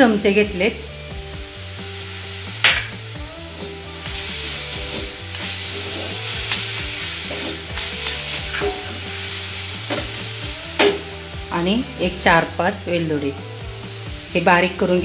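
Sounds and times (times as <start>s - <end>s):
spatula scraping filling in a pan: 4.2s - 11.0s.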